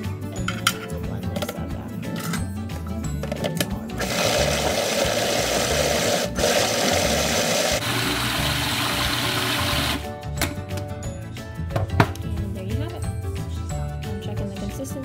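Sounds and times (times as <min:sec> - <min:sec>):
food processor motor running: 0:04.0 - 0:10.0.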